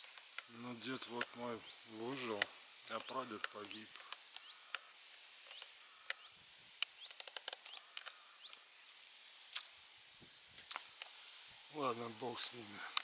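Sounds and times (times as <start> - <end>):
sharp clicks: 0.0 - 1.4, 2.1 - 8.6, 9.5 - 9.7
small birds chirping: 0.0 - 13.0.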